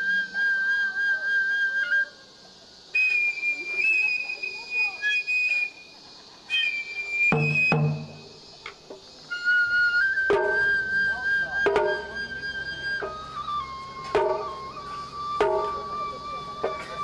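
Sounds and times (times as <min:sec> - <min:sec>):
bamboo flute long notes: 0:00.0 - 0:08.5, 0:09.2 - 0:17.0
drum strikes: 0:07.3 - 0:09.0, 0:10.3 - 0:10.8, 0:11.6 - 0:12.2, 0:14.0 - 0:16.0, 0:16.6 - 0:17.0.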